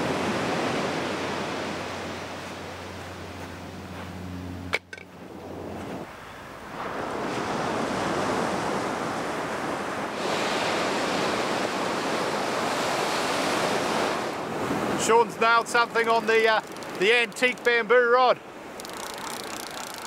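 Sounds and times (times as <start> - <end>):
low steady hum: 2.0 - 6.7
surf breaking on beach: 6.0 - 20.0.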